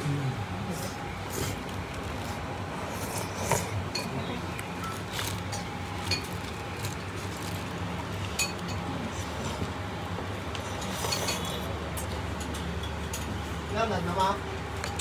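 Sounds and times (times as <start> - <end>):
tableware clinking on plates: 10.6 - 11.7.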